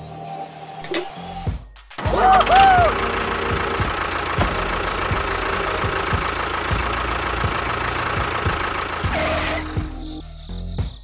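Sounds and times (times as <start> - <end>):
engine idling with low knock: 2.0 - 10.2.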